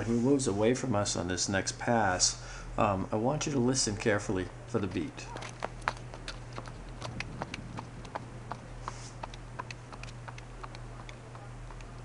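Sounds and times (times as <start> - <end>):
horse hooves clip-clopping on pavement: 4.8 - 12.0.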